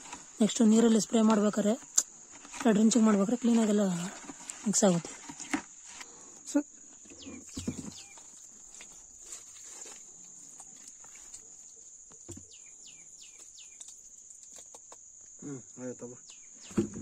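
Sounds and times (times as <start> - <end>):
night insects chirring: 0.0 - 16.8
liquid sloshing thuds: 7.4 - 9.0.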